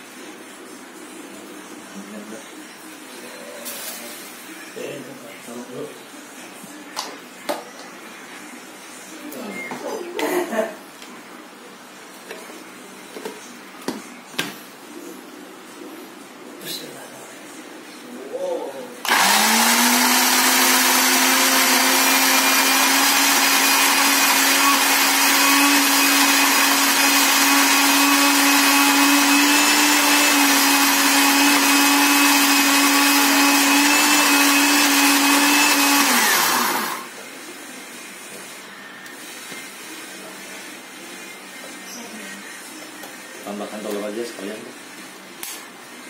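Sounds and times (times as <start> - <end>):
blender running: 19.0 - 37.1.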